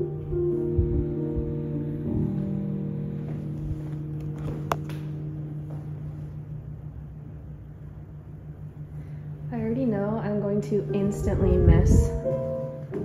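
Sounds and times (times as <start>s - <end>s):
background music: 0.0s - 6.8s, 9.6s - 13.0s
steady low hum: 0.0s - 13.0s.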